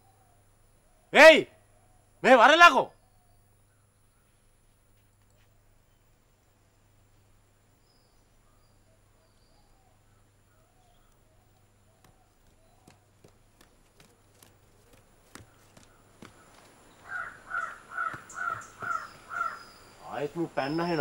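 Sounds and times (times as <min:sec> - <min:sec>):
faint bird chirps: 0:00.0 - 0:06.2, 0:07.7 - 0:21.0
footsteps on concrete steps: 0:12.0 - 0:19.6.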